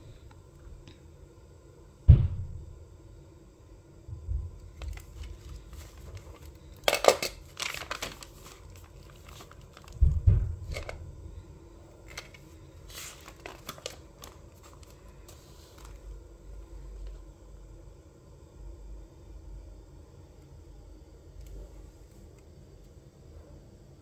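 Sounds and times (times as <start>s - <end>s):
low thumps: 2.1s - 2.7s, 10.0s - 11.2s
paper pages rustling: 4.8s - 6.6s, 7.5s - 10.1s, 12.0s - 16.1s.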